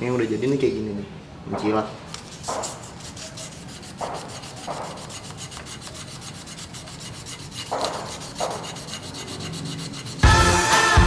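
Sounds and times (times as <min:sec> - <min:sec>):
sandpaper rubbing on metal: 0:02.2 - 0:10.5.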